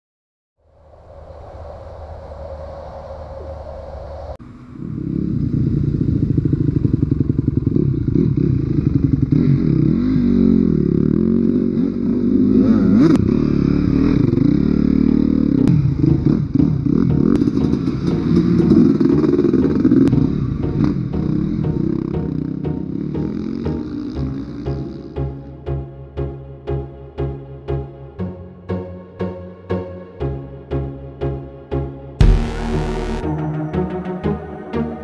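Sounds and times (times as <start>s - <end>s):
dirt bike engines revving: 4.5s - 25.3s.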